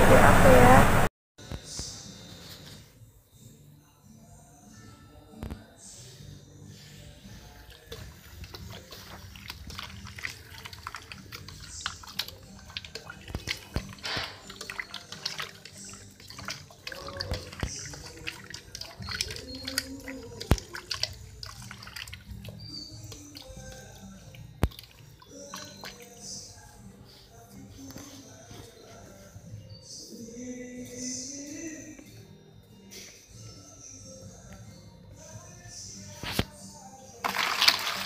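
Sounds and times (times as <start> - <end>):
wet squelching and splashing: 7.7 - 26.2, 37.2 - 38.0.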